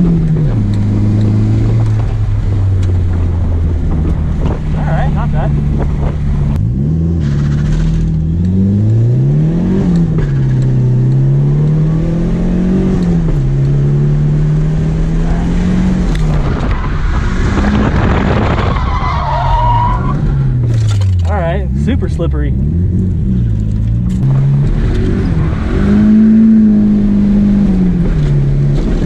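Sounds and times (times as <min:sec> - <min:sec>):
car engine revving: 0:00.0 - 0:29.0
tyres skidding: 0:00.0 - 0:29.0
tyre squeal: 0:18.6 - 0:20.2.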